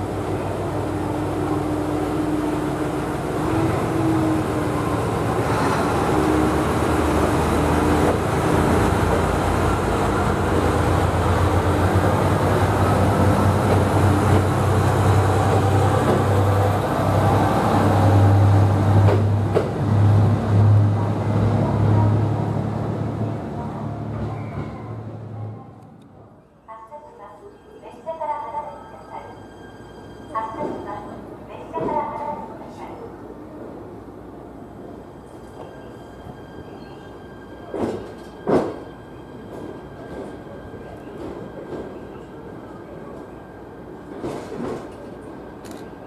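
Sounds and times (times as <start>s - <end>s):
diesel railcar engine hum: 0.0s - 26.4s
train wheels rolling: 37.6s - 42.3s.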